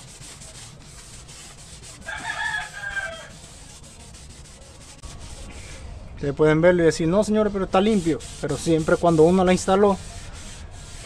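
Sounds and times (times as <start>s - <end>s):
cloth rag rubbing on steel: 0.0s - 5.8s, 7.2s - 11.0s
rooster crowing: 2.0s - 3.4s.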